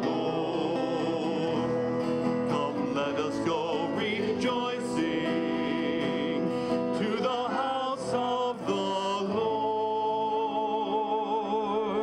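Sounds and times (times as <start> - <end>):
hymn singing with accompaniment: 0.0 - 12.0.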